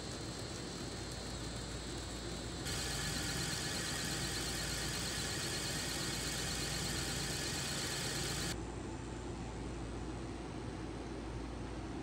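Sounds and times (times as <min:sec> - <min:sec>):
wood lathe spinning: 0:00.0 - 0:08.6.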